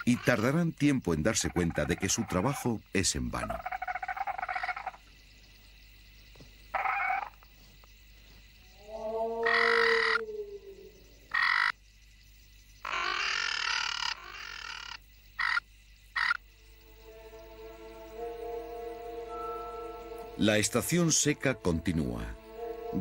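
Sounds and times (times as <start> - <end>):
dinosaur calls: 8.8 - 11.5.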